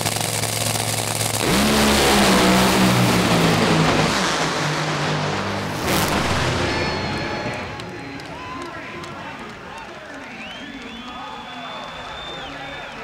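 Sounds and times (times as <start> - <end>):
dragster engine at full throttle: 0.0 - 7.9.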